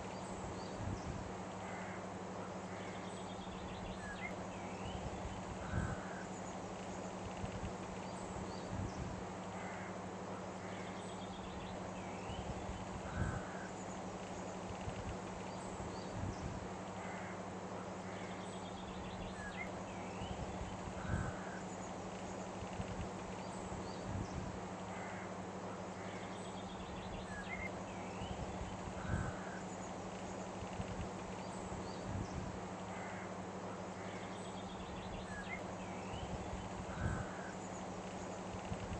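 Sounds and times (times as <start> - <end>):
bird calls and chirps: 0.0 - 9.0, 17.0 - 38.9
low steady hum: 0.0 - 38.9.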